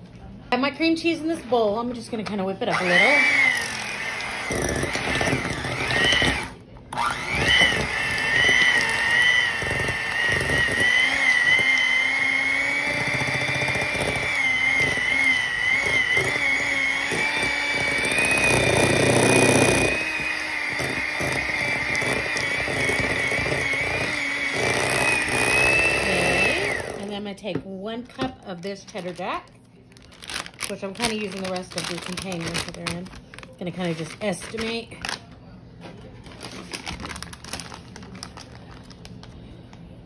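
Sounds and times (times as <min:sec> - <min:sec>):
electric hand mixer whining: 0:02.6 - 0:27.2.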